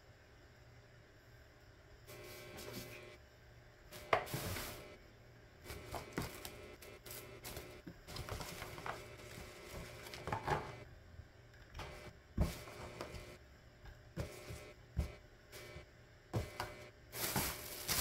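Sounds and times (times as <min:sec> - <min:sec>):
plastic bag rustling and crinkling: 0:07.1 - 0:10.6, 0:17.2 - 0:18.0.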